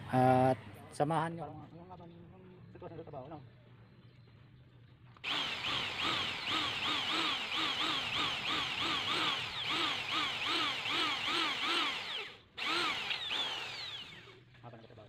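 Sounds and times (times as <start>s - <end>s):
electric drill boring metal: 5.2s - 14.4s.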